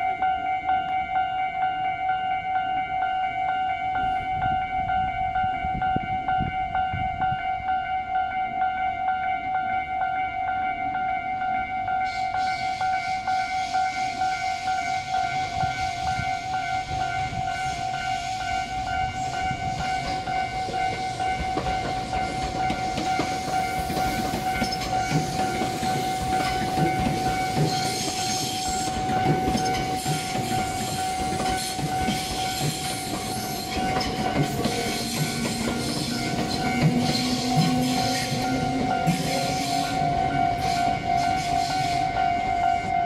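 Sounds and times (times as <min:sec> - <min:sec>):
electric train passing: 0:00.0 - 0:43.0
level-crossing warning bell: 0:00.0 - 0:43.0
wheel clatter over rail joints: 0:20.0 - 0:41.6.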